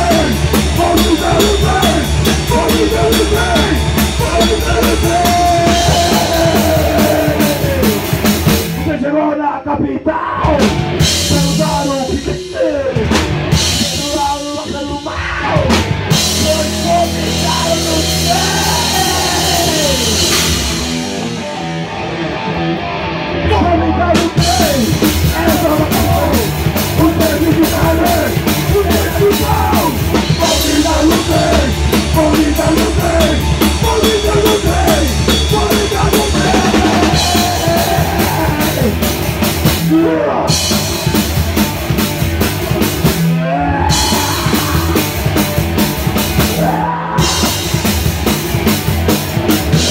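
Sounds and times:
person singing: 0.0 - 8.1, 9.9 - 20.9, 23.4 - 39.1, 43.3 - 45.3
drum kit with cymbals: 0.0 - 8.9, 10.4 - 21.8, 24.0 - 49.9
electric guitars: 0.0 - 9.0, 10.4 - 49.9
rock band playing: 0.0 - 9.2, 10.3 - 49.9.

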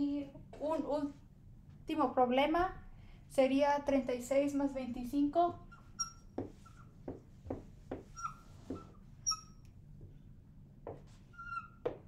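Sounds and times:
marker squeaking on whiteboard: 5.5 - 9.7, 10.9 - 12.0.

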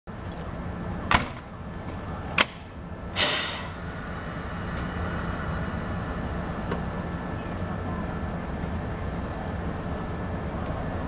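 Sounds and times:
electric train humming: 1.6 - 11.0
short hiss: 3.2 - 5.6.

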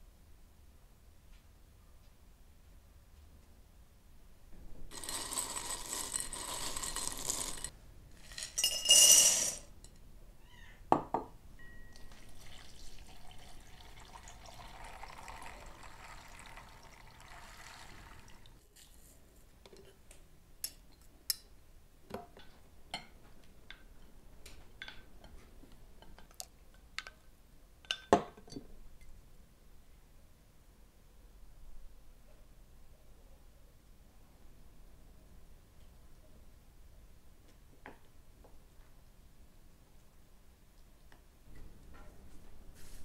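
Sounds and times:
dry beans rattling in glass bowl: 4.9 - 9.7
water pouring onto beans: 12.0 - 18.6.

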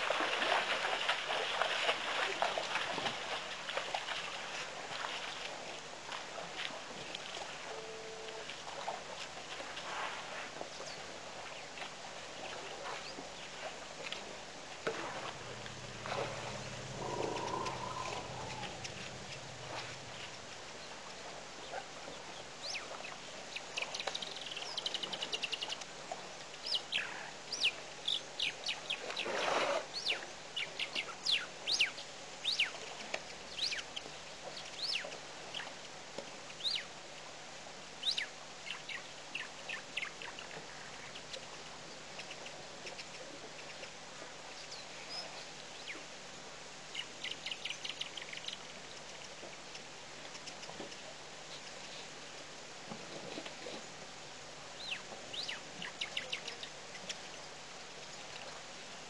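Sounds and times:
faint steady hiss: 0.0 - 59.0
bird trilling: 17.0 - 19.4
birds whistling: 17.0 - 19.4.

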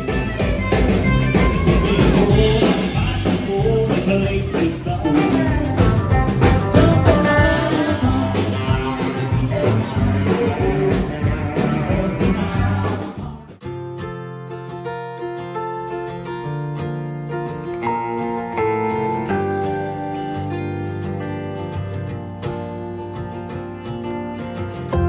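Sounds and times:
drum beat: 0.0 - 13.6
electric guitar: 0.0 - 25.0
person singing: 1.2 - 13.6.

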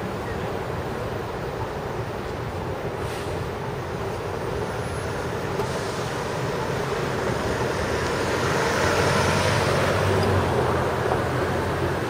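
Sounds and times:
city street noise: 0.0 - 12.0
car driving past: 7.1 - 12.0.

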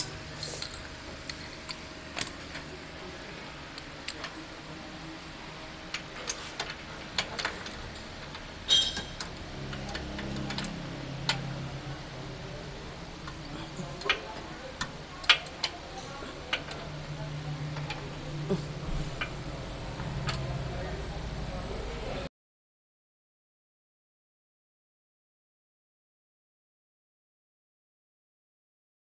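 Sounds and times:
ringing metal clink: 8.7 - 9.2.

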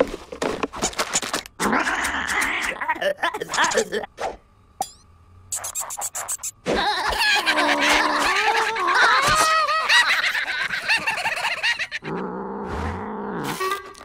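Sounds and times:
high squeaky cartoon chattering: 4.8 - 12.1.

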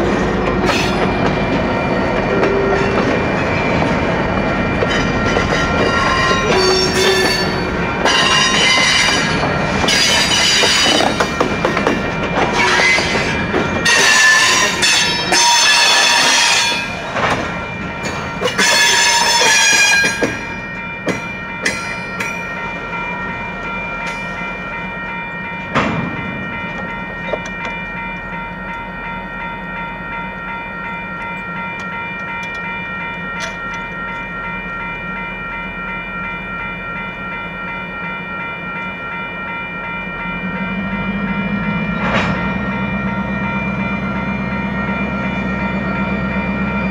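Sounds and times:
freight cars rolling: 0.0 - 20.6
steady high ringing tone: 0.0 - 46.9
locomotive horn blasts: 4.9 - 9.3, 12.5 - 17.0, 18.5 - 20.3.

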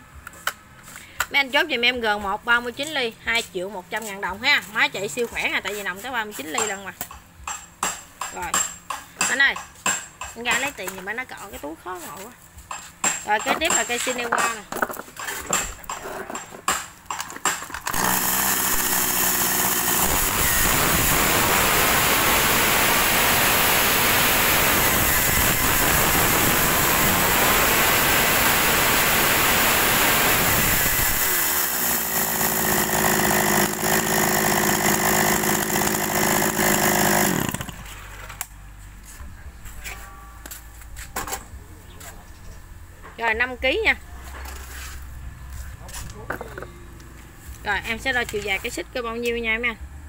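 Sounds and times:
chainsaw starting: 17.8 - 38.2
chainsaw idling: 17.9 - 37.9
chainsaw revving high: 17.9 - 37.9.

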